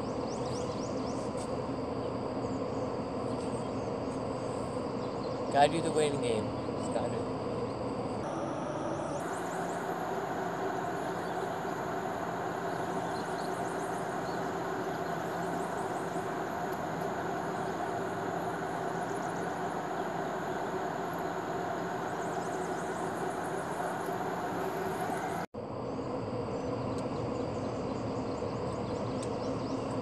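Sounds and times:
mechanical hum with hiss: 0.0s - 30.0s
faint high chirps: 8.2s - 16.8s.

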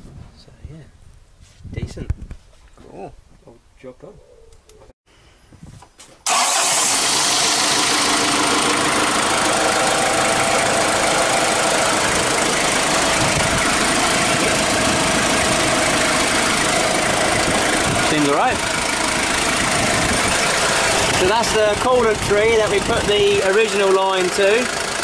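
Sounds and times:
diesel engine idling clatter: 6.3s - 25.0s.

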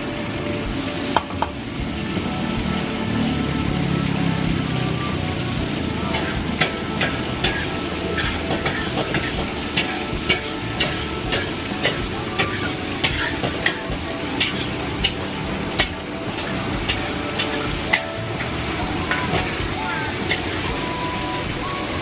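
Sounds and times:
oil sizzling in a wok: 0.0s - 22.0s
metal spatula scraping a wok: 6.1s - 21.3s.

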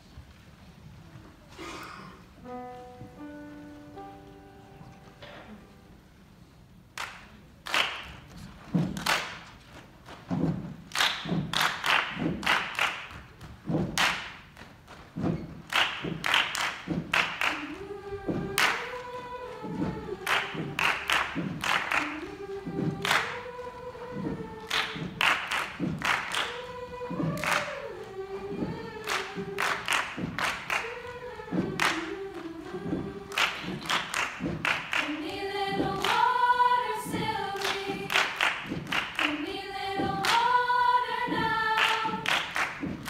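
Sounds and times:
rhythmic hand claps and chest pats: 6.9s - 43.0s
vocal quartet singing a cappella: 17.2s - 43.0s.

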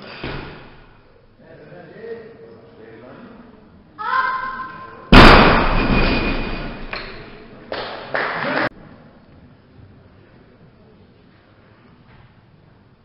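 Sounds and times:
burst of noise: 5.1s - 6.5s
barbell crashing onto platform: 5.1s - 7.0s.

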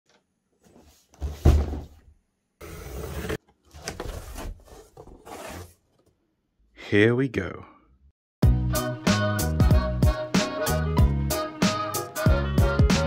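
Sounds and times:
heavy thump of box: 1.3s - 1.9s
cardboard scraping and rustling: 2.6s - 6.1s.

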